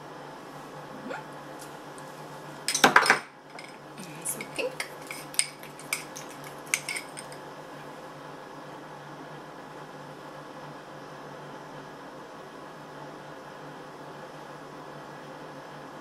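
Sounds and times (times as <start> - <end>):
dishes and utensils clinking: 2.7 - 7.4.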